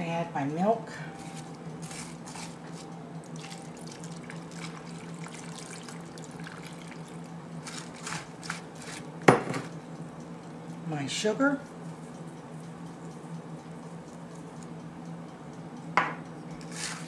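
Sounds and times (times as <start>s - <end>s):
milk pouring and splashing: 3.4s - 8.6s.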